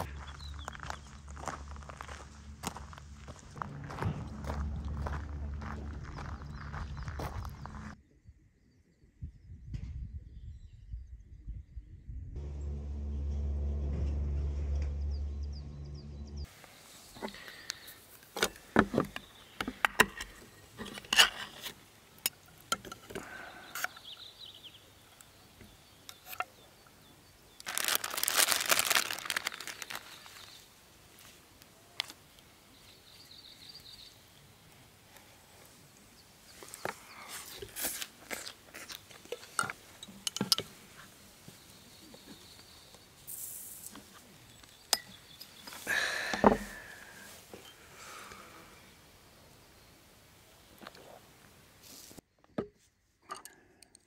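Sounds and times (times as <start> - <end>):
background music: 12.4 - 16.5
packaging crinkling and clicks: 27.6 - 30.6
hissing rustle: 43.2 - 44.3.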